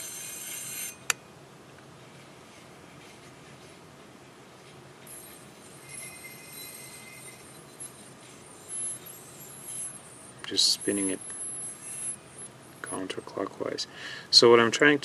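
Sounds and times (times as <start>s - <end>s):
hard drive heads grinding: 0.0s - 1.2s, 5.0s - 13.4s
faint hiss of spinning drive: 5.1s - 14.6s.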